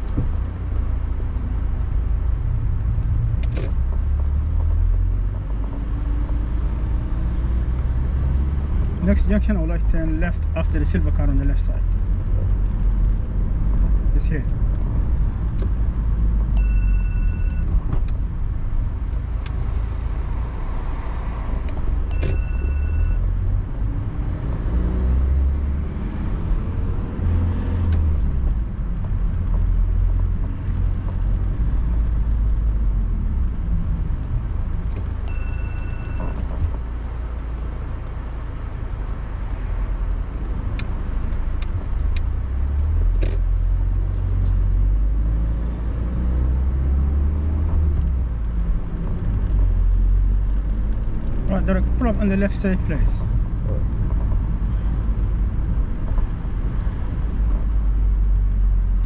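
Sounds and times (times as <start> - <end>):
car engine and tyres rumbling: 0.0 - 59.0
short beeps: 16.6 - 17.7, 22.1 - 23.2, 35.3 - 36.4.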